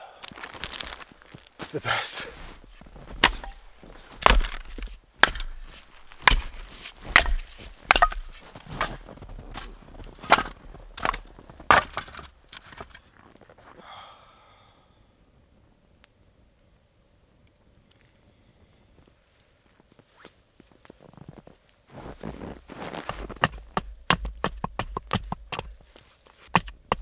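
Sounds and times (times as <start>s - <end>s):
sharp cracking knocks: 3.0s - 12.3s, 23.1s - 25.8s, 26.5s - 27.0s.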